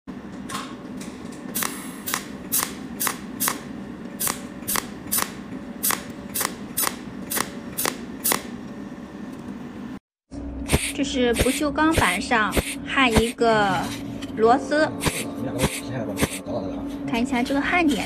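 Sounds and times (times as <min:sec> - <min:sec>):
steady low hum: 0:00.1 - 0:18.0
welder snapping: 0:01.6 - 0:08.5.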